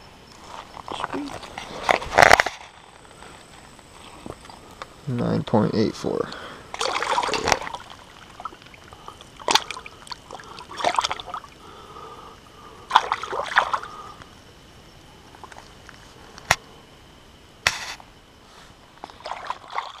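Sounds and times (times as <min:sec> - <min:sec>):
river water splashing: 0:06.7 - 0:11.8, 0:12.9 - 0:14.0, 0:19.0 - 0:20.0
sharp click: 0:17.6 - 0:18.0.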